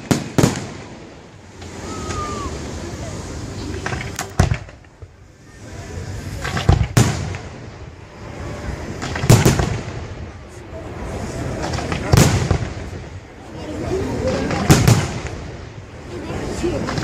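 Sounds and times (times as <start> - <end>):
firework shells booming: 0.0 - 2.3, 3.8 - 5.1, 6.4 - 7.9, 9.0 - 10.4, 11.6 - 13.1, 14.4 - 15.8
small firework bursts: 0.0 - 17.0.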